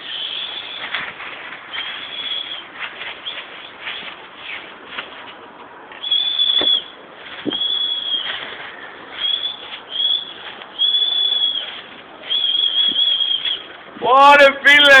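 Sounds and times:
person whistling high notes: 6.0 - 8.3, 9.2 - 13.7.

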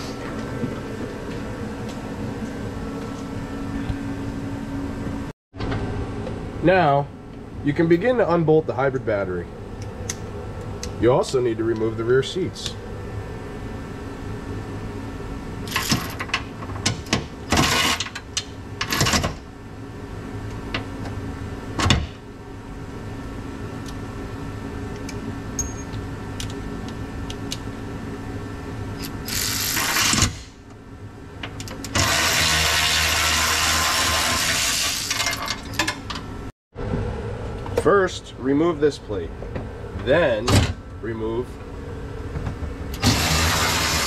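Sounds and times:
steady hum: 0.0 - 44.0
power tool running: 31.9 - 35.5, 42.9 - 44.0.

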